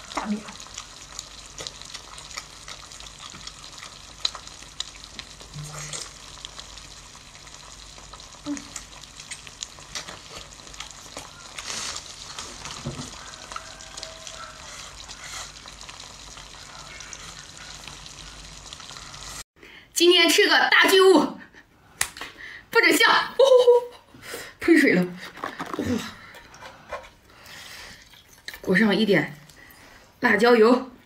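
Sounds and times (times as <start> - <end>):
wet chewing and sucking: 0.0 - 19.4.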